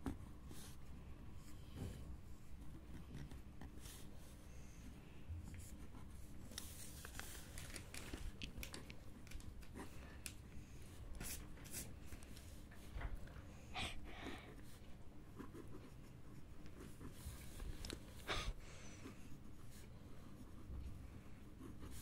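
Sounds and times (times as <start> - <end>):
pen scratching on paper: 2.3 - 4.3, 14.5 - 18.1, 19.1 - 22.0
paper rustling: 6.4 - 10.4.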